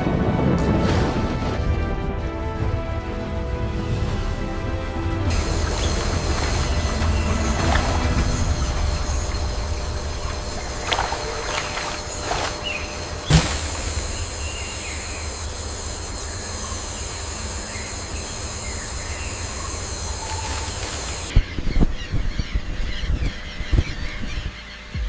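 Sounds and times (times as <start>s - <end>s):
low rumble: 3.2s - 24.4s
high-pitched insect drone: 5.3s - 21.3s.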